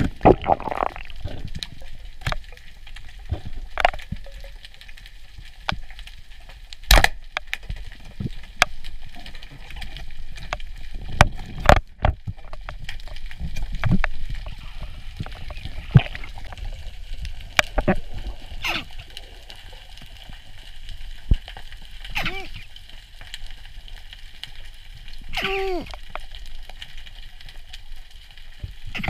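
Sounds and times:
underwater clicks and knocks: 0.0s - 4.8s, 6.9s - 14.5s, 15.1s - 16.7s, 17.4s - 18.8s.

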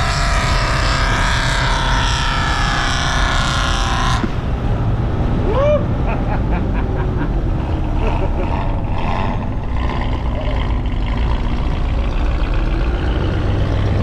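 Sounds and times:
rising and falling squeak: 0.0s - 4.4s
high whining tones: 0.0s - 4.6s
off-road vehicle engine rumbling: 0.0s - 14.0s.

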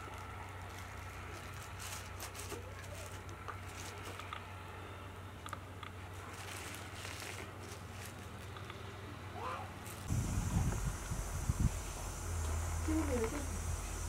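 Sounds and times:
plastic crinkling: 0.0s - 4.4s, 5.9s - 8.7s
steady low hum: 0.0s - 14.0s.

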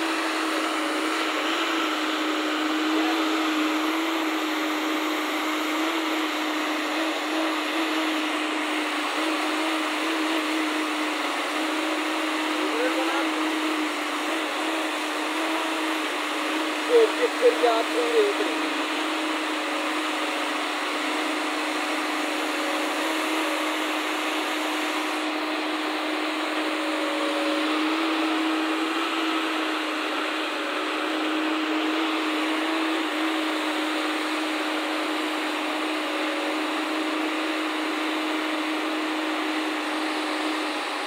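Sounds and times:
excavator engine and hydraulics: 0.0s - 19.3s.

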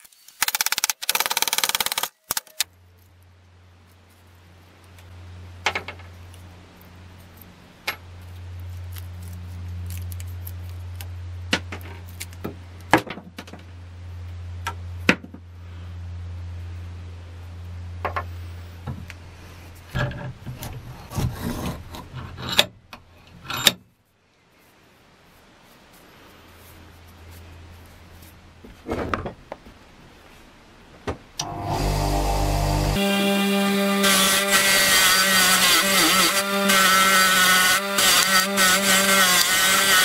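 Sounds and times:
steady low hum: 13.6s - 28.8s.

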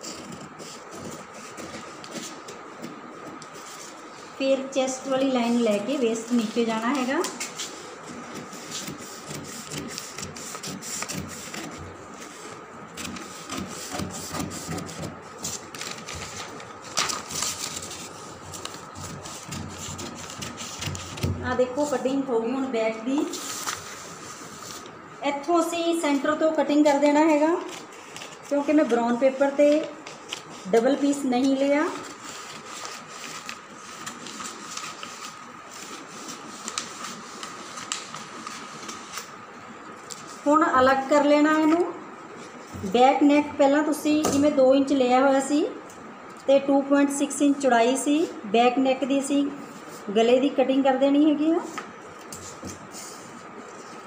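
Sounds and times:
paper rustling: 5.7s - 22.0s, 23.2s - 25.0s, 26.9s - 39.4s.

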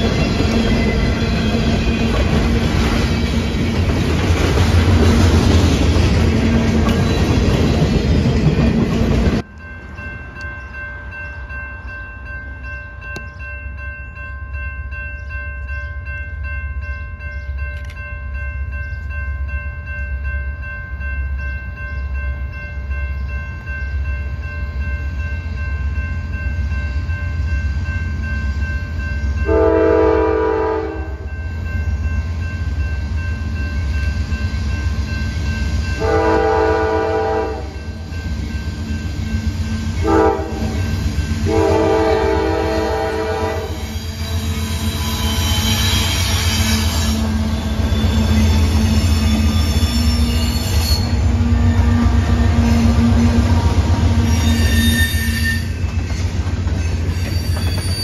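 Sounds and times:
freight train rumble: 0.0s - 58.0s
grade-crossing bell ringing: 0.0s - 58.0s
train air horn blowing: 29.4s - 31.3s, 36.0s - 37.8s, 40.0s - 53.5s, 54.1s - 55.8s.

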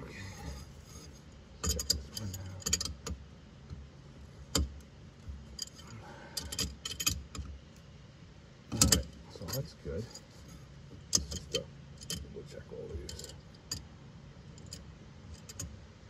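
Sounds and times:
metal nuts clicking and clinking: 1.6s - 3.0s, 5.5s - 7.4s, 8.7s - 9.6s, 11.1s - 12.2s, 13.0s - 13.8s, 14.5s - 15.7s.

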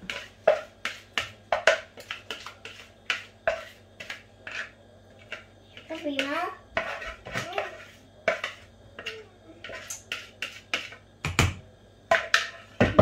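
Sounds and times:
batter scraped from mixing bowl: 2.0s - 6.0s, 6.8s - 11.0s.

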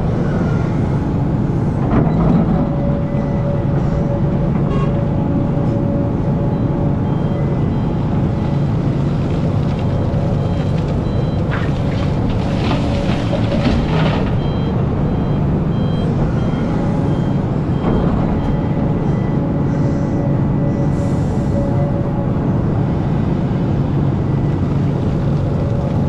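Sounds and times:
excavator diesel engine running: 0.0s - 26.0s
earth and rocks pouring into truck bed: 11.5s - 14.4s
backup alarm beeping: 14.3s - 19.9s.

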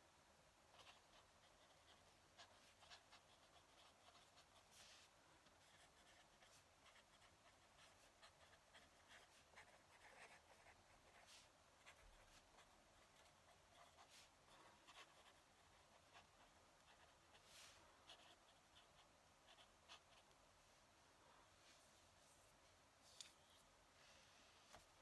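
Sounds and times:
pen nib scratching on paper: 0.7s - 20.4s.

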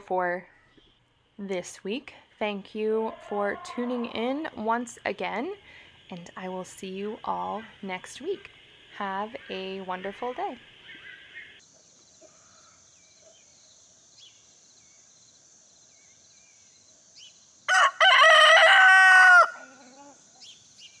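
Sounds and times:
rooster crowing: 3.1s - 4.3s, 17.7s - 20.2s.

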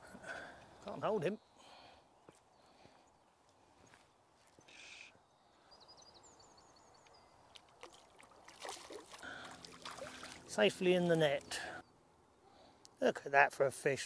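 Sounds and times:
bird chirping: 4.5s - 7.8s
fish splashing in water: 7.6s - 10.5s.

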